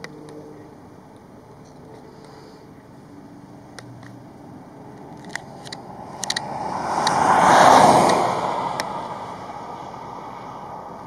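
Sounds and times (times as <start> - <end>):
vehicle driving past: 2.7 - 11.0.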